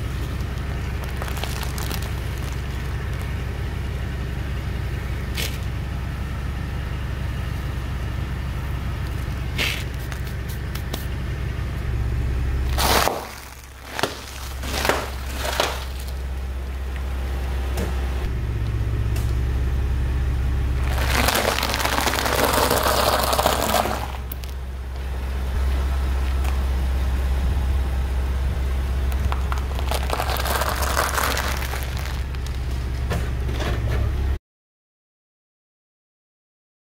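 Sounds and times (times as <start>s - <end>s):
low engine hum: 0.0s - 34.4s
tyre crushing crunchy snacks: 0.2s - 3.4s, 9.1s - 11.0s, 12.7s - 16.3s, 20.8s - 24.6s, 29.1s - 32.7s.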